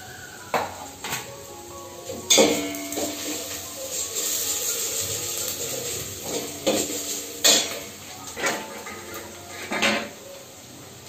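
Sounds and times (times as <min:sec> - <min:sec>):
steel pots clanking: 0:02.0 - 0:10.2.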